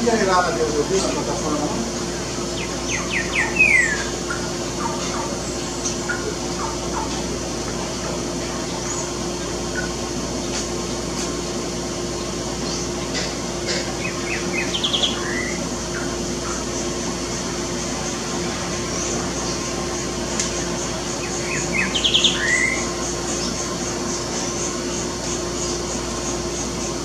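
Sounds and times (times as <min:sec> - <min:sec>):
bird singing with trill and whistle: 0:02.3 - 0:07.0, 0:14.0 - 0:17.0, 0:18.8 - 0:26.4.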